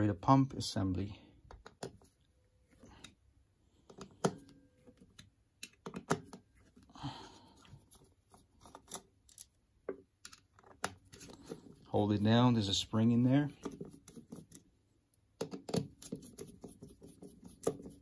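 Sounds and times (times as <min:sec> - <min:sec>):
screwdriver clicks and taps: 0:05.1 - 0:06.4, 0:15.4 - 0:16.0.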